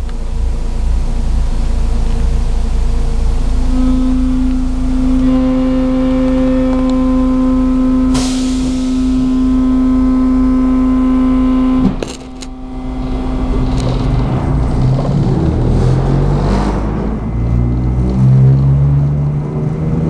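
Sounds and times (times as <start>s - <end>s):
electrical hum: 0.0s - 20.0s
train rumble: 0.0s - 20.0s
brief hiss: 8.1s - 9.6s.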